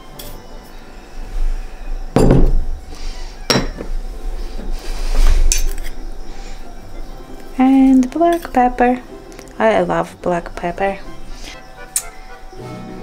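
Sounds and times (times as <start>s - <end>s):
metal spoon clinking ceramic dishes: 3.5s - 3.9s, 7.9s - 8.6s.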